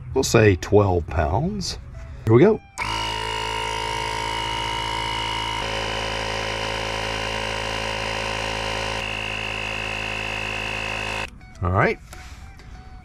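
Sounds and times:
electric air compressor running: 2.8s - 11.3s.

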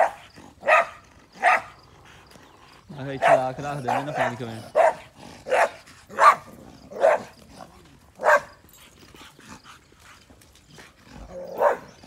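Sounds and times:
dog barking: 0.0s - 1.7s, 3.2s - 7.3s, 8.2s - 8.6s, 11.4s - 12.0s.

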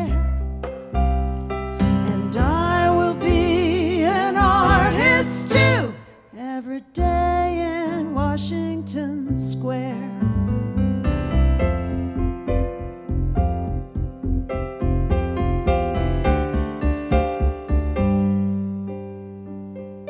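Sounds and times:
woman singing with vibrato: 2.0s - 10.2s
electric keyboard playing: 10.5s - 20.0s.

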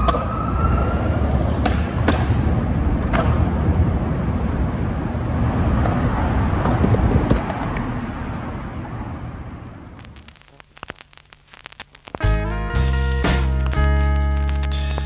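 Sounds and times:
skateboard wheels rolling on asphalt: 0.0s - 10.2s
traffic rumble: 0.0s - 12.0s
faint steady hum: 9.6s - 12.2s
vinyl record crackles and clicks: 9.6s - 15.0s.

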